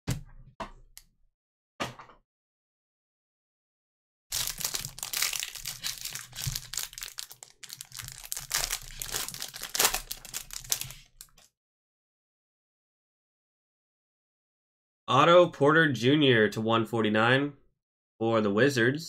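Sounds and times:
plastic wrapper crinkling and tearing: 4.3 - 11.5.

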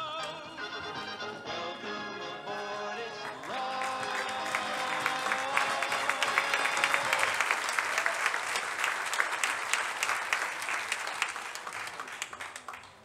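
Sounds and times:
audience applauding: 3.2 - 13.0.

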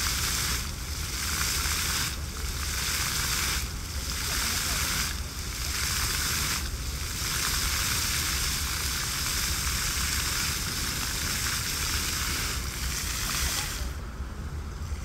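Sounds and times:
fountain jets spraying water: 0.0 - 15.0.

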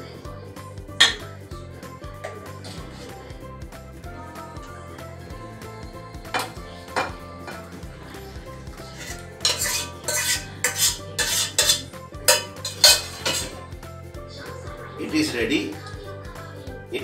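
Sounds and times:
scraping stew out of pot: 6.3 - 13.7
pot clinking against metal: 6.4 - 7.7, 8.9 - 13.6.

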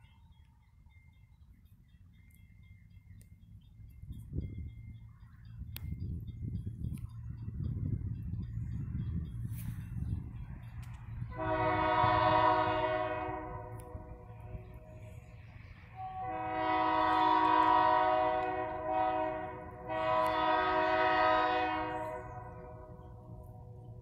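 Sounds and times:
locomotive air horn blasts: 11.3 - 14.6, 15.9 - 23.0.

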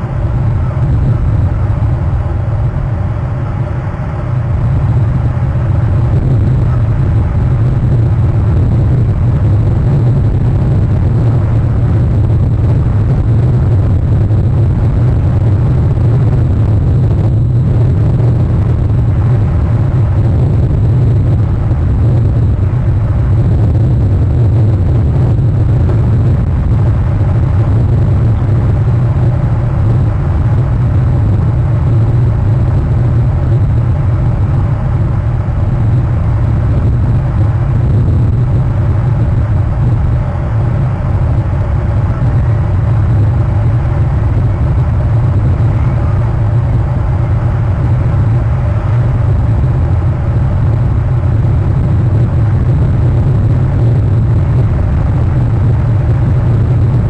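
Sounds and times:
faint hum: 0.0 - 57.0
loud low rumble: 0.0 - 57.0.

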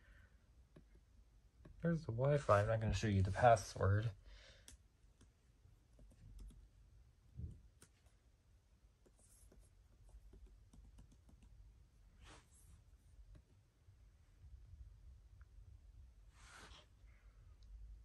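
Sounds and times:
laptop keyboard typing clicks: 10.4 - 11.5.

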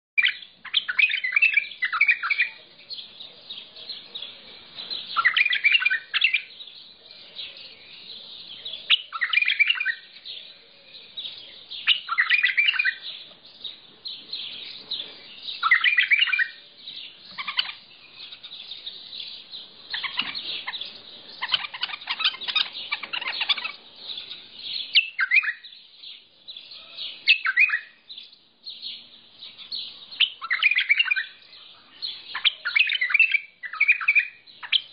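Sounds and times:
bulbul singing warbled phrases: 0.2 - 34.9
high twittering: 14.6 - 25.7.

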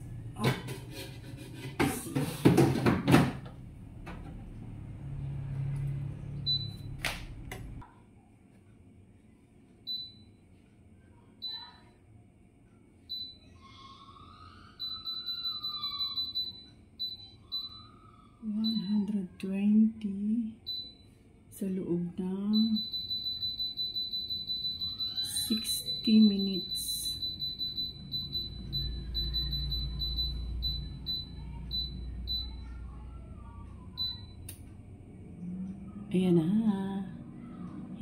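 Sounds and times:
short electronic beeps: 6.4 - 7.0, 22.6 - 32.6.

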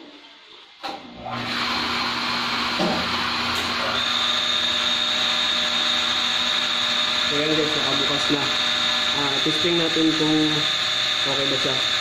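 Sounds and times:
electric motor hum: 1.2 - 12.0.

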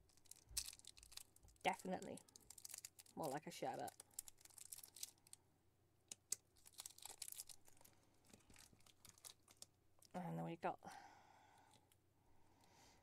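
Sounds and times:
paper crinkling and tearing: 0.0 - 5.4, 6.3 - 9.7.

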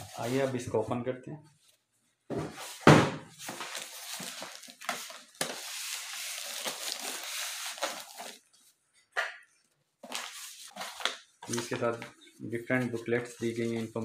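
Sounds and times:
foam and plastic rustling: 0.0 - 1.0, 2.5 - 8.5, 10.0 - 12.0.

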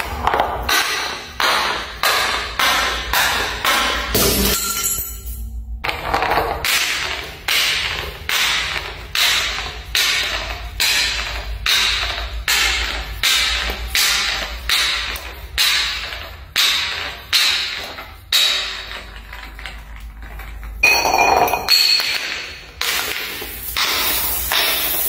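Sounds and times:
glass bottle clinking down stairs: 4.2 - 5.5, 17.4 - 23.2.

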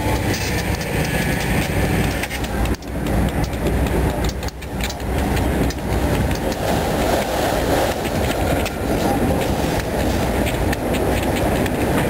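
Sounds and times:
clicks over rail joints: 0.0 - 12.0
train wheels rumbling on rail: 0.0 - 12.0.

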